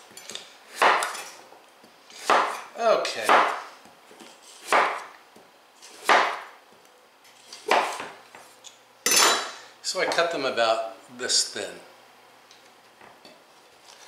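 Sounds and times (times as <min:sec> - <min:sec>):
knife slicing squash: 0:00.7 - 0:01.2, 0:02.1 - 0:05.1, 0:05.8 - 0:06.5, 0:07.6 - 0:08.1.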